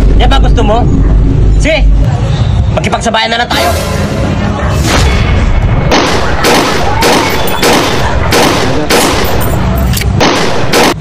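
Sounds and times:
pistol gunshots: 5.8 - 11.0.

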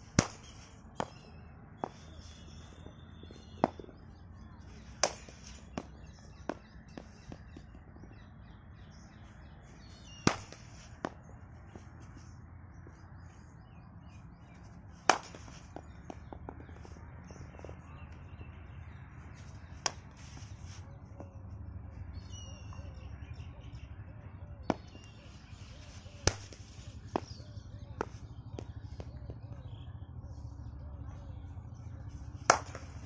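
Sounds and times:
birds chirping faintly: 0.1 - 33.0
cricket bat hitting ball: 0.2 - 1.2, 4.8 - 7.7, 10.2 - 11.2, 15.1 - 16.8, 26.2 - 27.4, 32.5 - 33.0.

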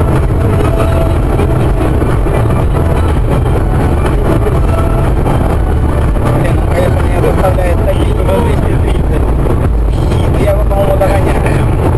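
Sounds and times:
car cabin noise at high speed: 0.0 - 11.9.

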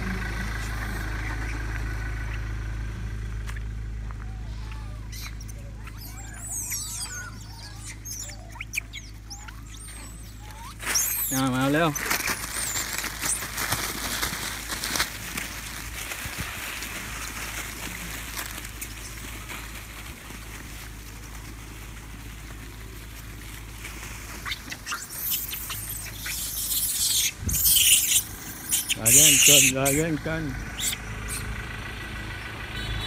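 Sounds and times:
rustling and crackling leaves: 0.0 - 33.0
high monkey calls: 4.2 - 13.5, 24.3 - 31.5.

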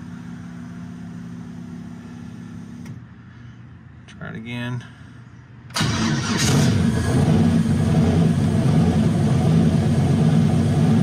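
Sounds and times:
car engine starting and idling: 5.7 - 11.0.

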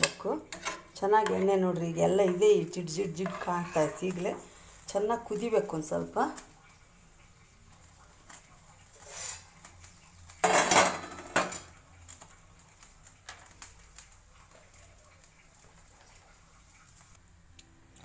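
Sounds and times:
metal kitchenware clattering: 0.0 - 4.5, 10.4 - 11.8
metal scrape: 9.0 - 9.4.

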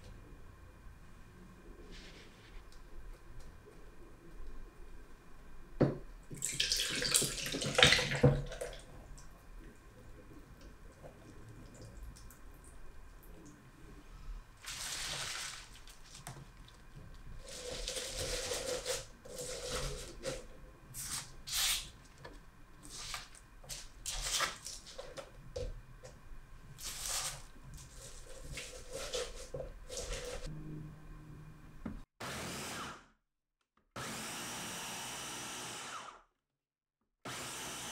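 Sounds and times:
leaves rustling and crinkling: 14.6 - 16.7.

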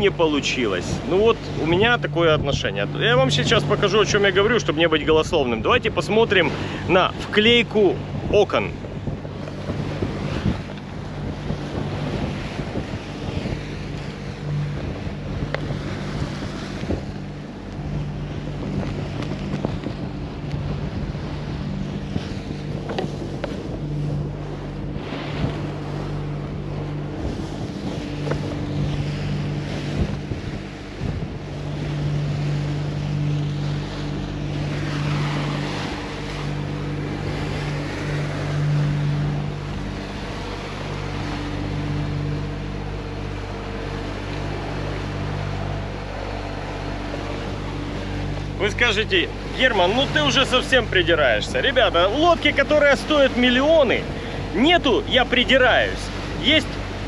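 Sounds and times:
boat engines droning: 0.0 - 57.0
wind buffeting microphone: 0.0 - 57.0.

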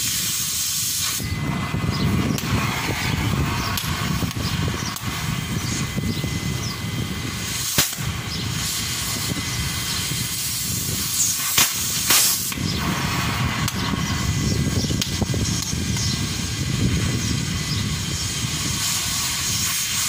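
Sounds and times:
cutting torch hissing: 0.0 - 20.0
low steady rumble: 1.2 - 19.7
sharp pops: 7.6 - 8.2, 11.0 - 14.2, 14.9 - 16.1.

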